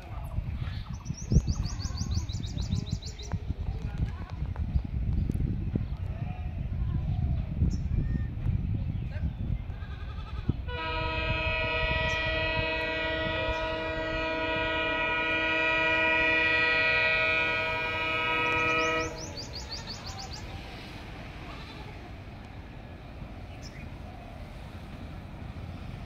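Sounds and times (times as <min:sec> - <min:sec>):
locomotive air horn blast: 0:10.7 - 0:19.7.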